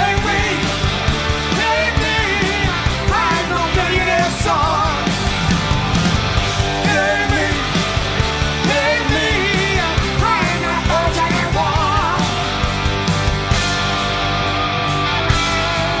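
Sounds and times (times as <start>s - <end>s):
rock guitars and drums: 0.0s - 16.0s
person singing: 6.8s - 7.9s, 8.6s - 12.4s.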